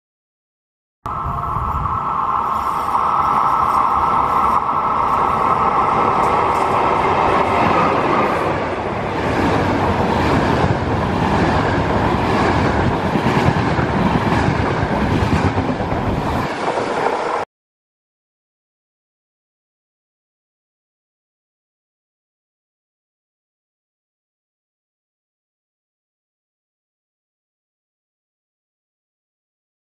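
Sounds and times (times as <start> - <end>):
train high whine: 1.1 - 17.5
train rumble: 1.1 - 17.5.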